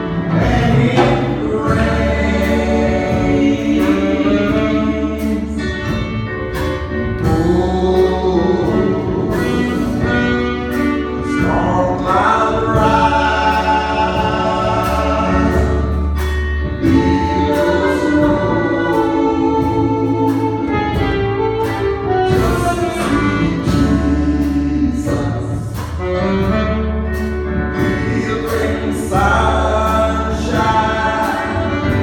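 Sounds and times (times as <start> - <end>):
bass and beat: 0.0 - 32.0
keyboard accompaniment: 0.0 - 32.0
woman singing gospel: 0.3 - 6.0, 7.2 - 16.0, 16.8 - 21.0, 27.8 - 32.0.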